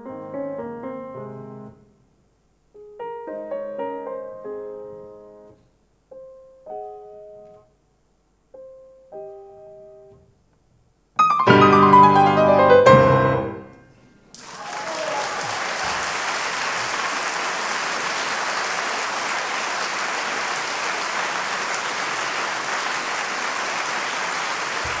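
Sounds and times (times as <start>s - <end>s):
piano chord: 11.2s - 13.9s
audience applause: 14.3s - 25.0s.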